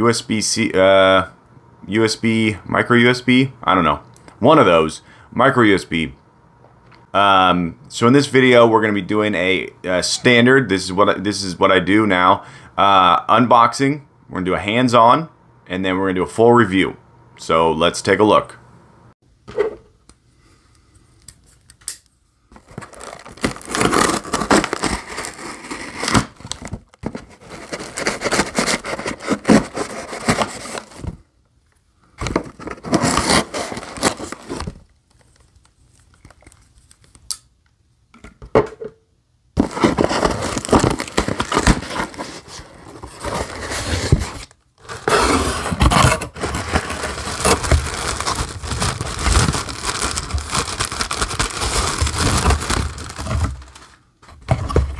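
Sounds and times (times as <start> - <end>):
plastic packing crinkling: 22.6 - 31.0, 32.2 - 37.2, 39.6 - 54.1
cardboard scraping and tearing: 22.6 - 31.1, 32.4 - 34.8, 39.6 - 53.9.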